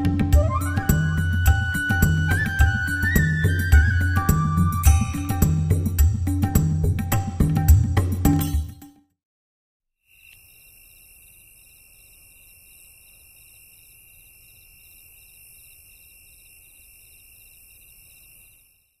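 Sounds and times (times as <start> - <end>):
crickets trilling: 10.1 - 19.0.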